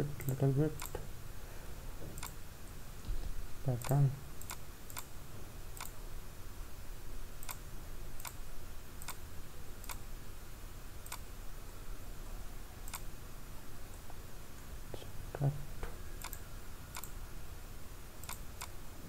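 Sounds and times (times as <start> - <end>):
faint low hum: 0.0 - 19.0
computer mouse clicking: 2.2 - 2.4, 3.8 - 5.1, 5.8 - 6.0, 7.4 - 7.6, 8.2 - 8.4, 9.0 - 9.2, 11.0 - 11.3, 12.8 - 13.1, 16.2 - 17.2, 18.2 - 18.8.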